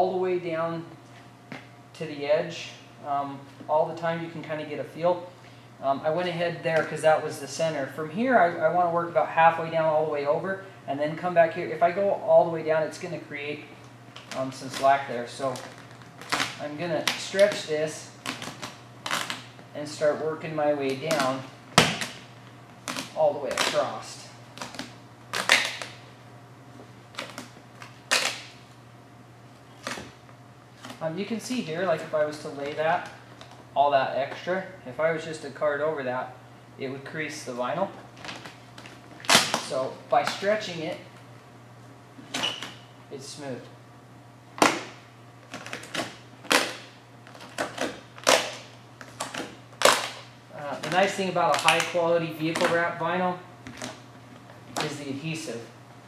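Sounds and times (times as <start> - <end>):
vinyl film crackling and snapping: 14.1 - 19.6, 20.8 - 26.0, 27.1 - 28.6, 29.6 - 31.1, 38.1 - 41.3, 44.6 - 52.9, 53.6 - 55.0
vinyl film crackling and scraping: 14.1 - 20.0.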